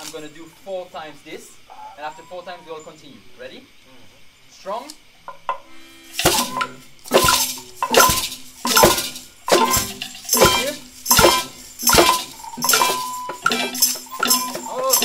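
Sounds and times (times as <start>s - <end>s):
loud percussive ensemble hits: 6.2s - 15.0s.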